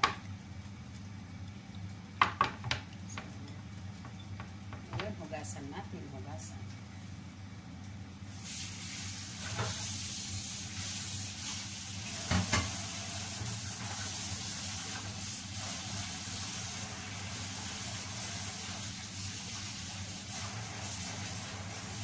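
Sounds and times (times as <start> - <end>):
hands washing meat: 8.3 - 22.0
tap water running into sink: 9.0 - 22.0
knocks in sink: 12.2 - 12.8.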